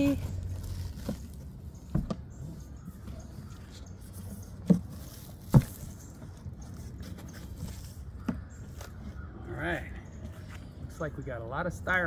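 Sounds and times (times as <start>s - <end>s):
dull thuds on cardboard box: 4.6s - 5.9s
cardboard flaps scuffing: 4.7s - 5.9s.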